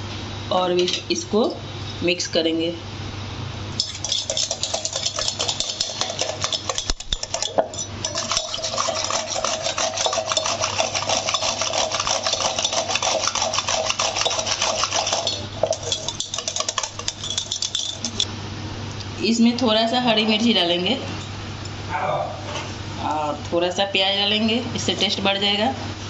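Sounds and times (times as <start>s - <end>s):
whisk clinking in metal bowl: 3.8s - 18.3s.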